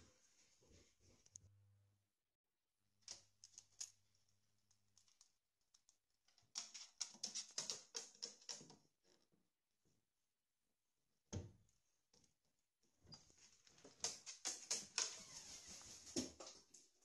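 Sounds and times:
bird claws tapping on floor: 13.8s - 15.2s.

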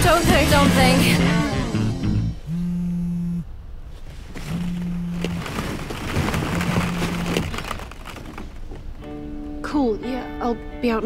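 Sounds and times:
mobile phone vibrating: 1.2s - 3.5s, 4.5s - 5.4s
crackling rustling noise: 3.8s - 9.6s.

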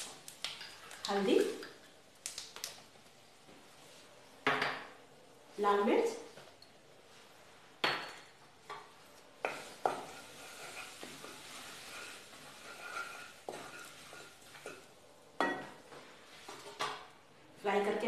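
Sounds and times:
spices sizzling in hot oil: 0.0s - 2.8s, 9.3s - 15.6s.

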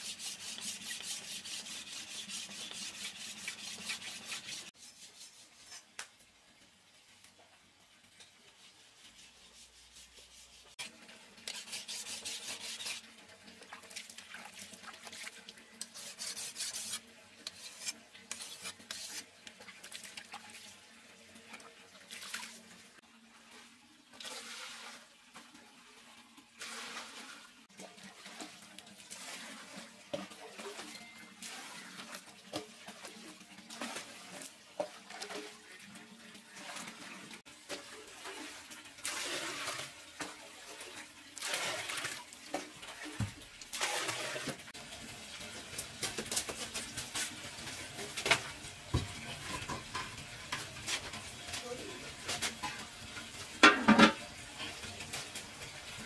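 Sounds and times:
water pouring and splashing: 0.0s - 4.8s, 5.8s - 56.0s
pots and utensils clinking: 47.2s - 55.7s.

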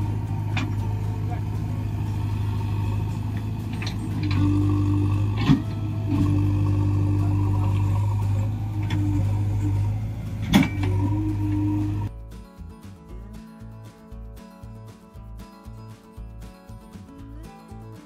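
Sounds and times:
diesel engine idling: 0.0s - 12.1s
wavering high whine: 0.0s - 12.1s.

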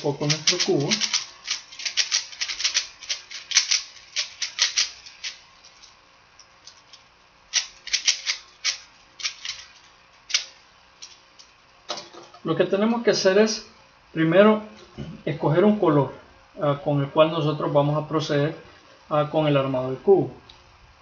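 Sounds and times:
puzzle cube clicking as twisted: 0.0s - 5.4s, 7.5s - 9.6s.

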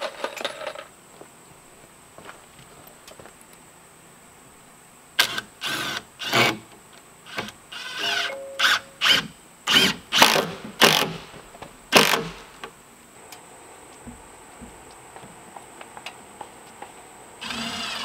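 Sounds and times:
cordless drill driving screws: 17.4s - 18.0s.

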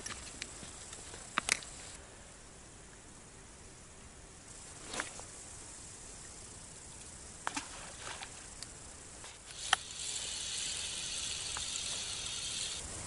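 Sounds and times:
rod and reel handling clicks: 0.0s - 1.8s, 9.3s - 12.8s
fishing reel whirring: 9.4s - 12.9s.

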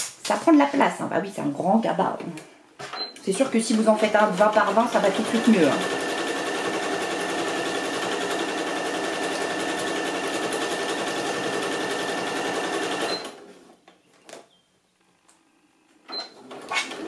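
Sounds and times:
sewing machine running: 4.0s - 13.5s.

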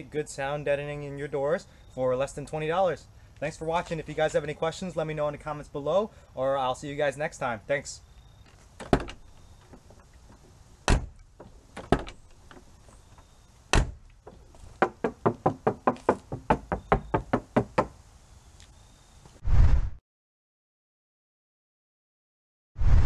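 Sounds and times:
car door thudding shut: 10.9s - 11.2s, 13.7s - 14.0s
knuckles rapping on car door: 13.7s - 17.9s.

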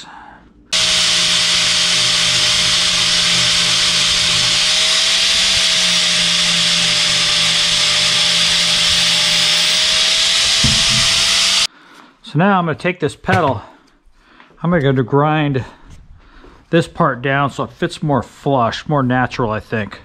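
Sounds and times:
angle grinder grinding metal: 0.7s - 11.7s.

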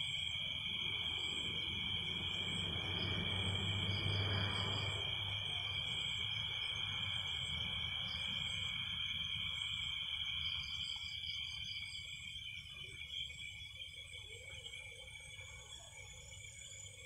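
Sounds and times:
crickets trilling: 0.0s - 17.0s.

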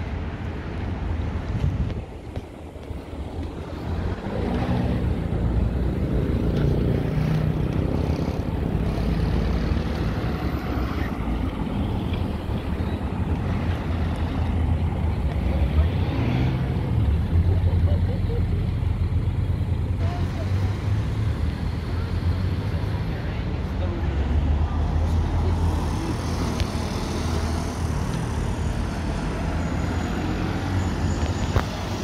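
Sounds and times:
vehicles passing with engine rumble: 0.0s - 32.0s
wind on microphone: 1.2s - 5.5s.

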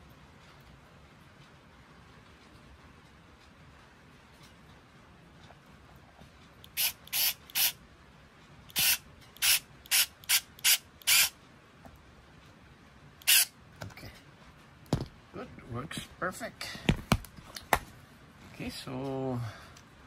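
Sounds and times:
cordless screwdriver whirring: 6.7s - 7.8s, 8.7s - 11.4s, 13.2s - 13.5s.

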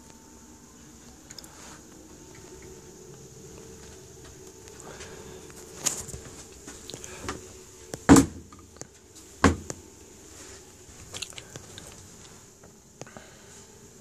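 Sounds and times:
cupboard doors knocking shut: 8.1s - 8.6s, 9.4s - 9.7s.

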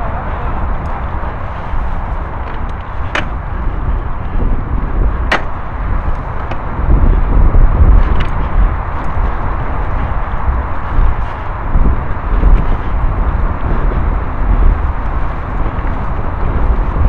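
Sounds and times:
bike rattling clicks over bumps: 0.0s - 17.0s
bike tyre noise on dirt: 0.0s - 17.0s
wind rumble on microphone: 0.0s - 17.0s.

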